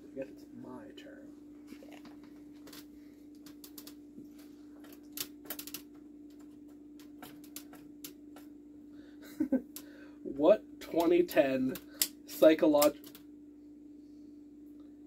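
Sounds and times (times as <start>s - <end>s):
faint low hum: 0.0s - 15.0s
small objects clicking and tapping: 2.6s - 4.0s, 4.8s - 8.5s.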